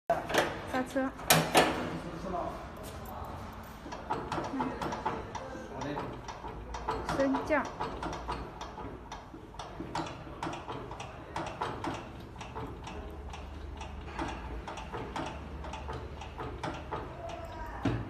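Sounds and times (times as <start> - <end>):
bed mechanism clicking: 3.8 - 18.0.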